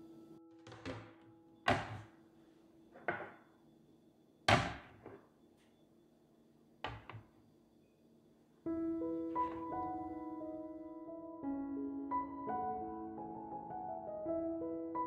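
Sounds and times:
glass dishes knocking and clinking: 3.0s - 3.4s
glass mug set down: 3.0s - 3.4s.

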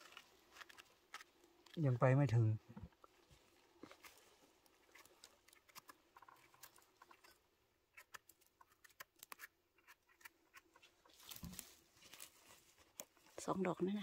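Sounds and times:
footsteps on forest litter: 11.1s - 13.3s.

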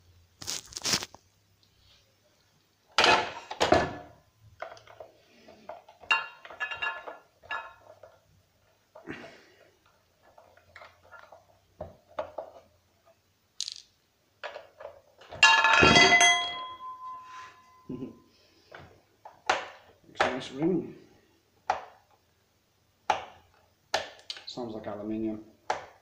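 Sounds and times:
screw clattering on tile floor: 4.6s - 8.2s, 13.6s - 17.9s.

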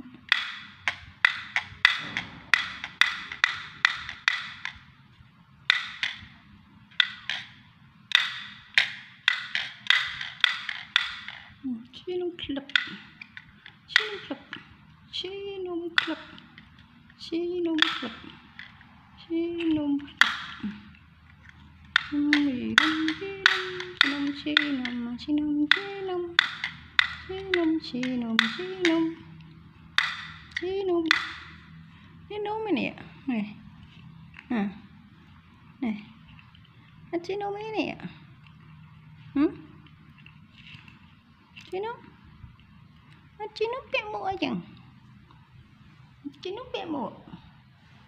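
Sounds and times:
toy chattering teeth clacking: 0.2s - 4.9s, 5.6s - 11.6s, 12.4s - 14.9s, 15.6s - 31.9s.

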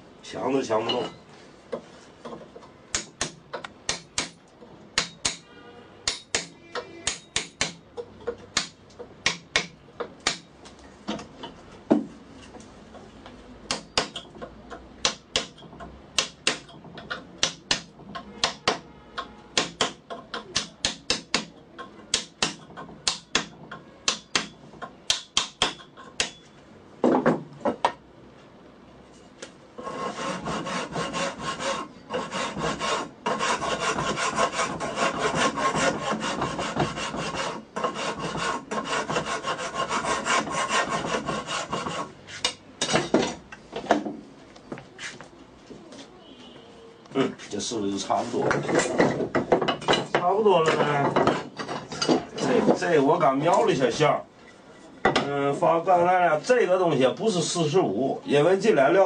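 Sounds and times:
hammer tapping chisel into wood: 6.1s - 10.5s, 13.7s - 26.4s
file rasping on wood: 29.8s - 42.6s.

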